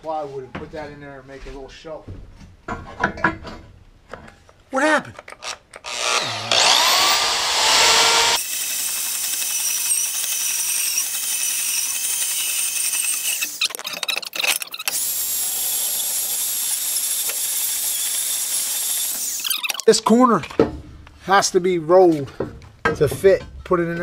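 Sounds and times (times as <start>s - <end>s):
band saw cutting metal: 5.4s - 19.8s.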